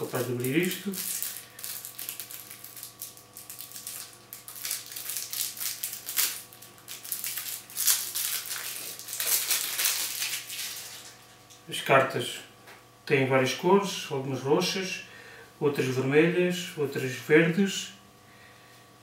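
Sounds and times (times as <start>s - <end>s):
plastic wrapping crinkling: 0.0s - 11.6s.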